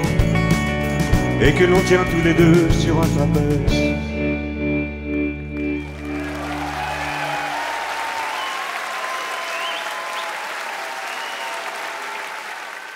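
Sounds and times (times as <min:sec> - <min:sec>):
audience applauding and cheering: 0:05.6 - 0:12.9.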